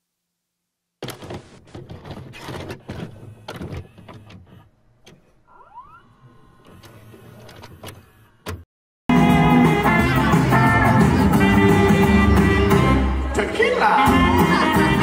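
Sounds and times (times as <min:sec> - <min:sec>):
tape mechanism clicks and clunks: 0:01.0 - 0:08.6.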